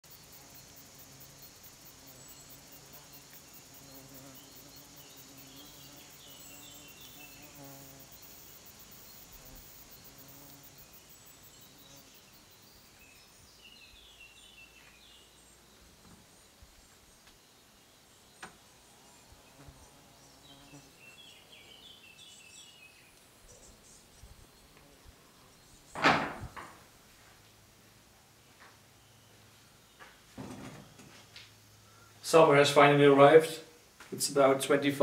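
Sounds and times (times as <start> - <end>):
high insect chirring: 0.0 - 14.7.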